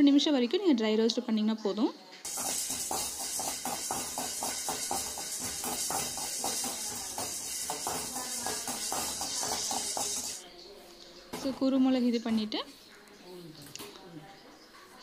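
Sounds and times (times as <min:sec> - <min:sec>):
spoon scraping and rattling peppercorns: 0:02.3 - 0:10.4
steady hiss: 0:02.3 - 0:10.4.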